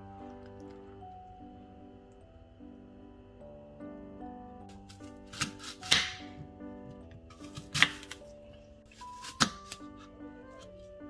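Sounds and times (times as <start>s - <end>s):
background music: 0.0s - 11.0s
knife chopping apple on board: 4.9s - 6.5s, 7.3s - 8.2s, 9.0s - 9.8s.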